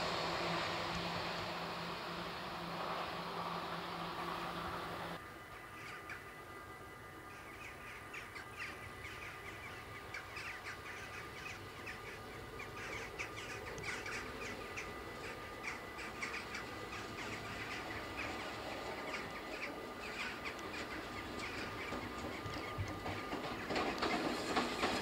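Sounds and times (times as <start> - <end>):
crow-like bird calls: 7.3 - 23.6.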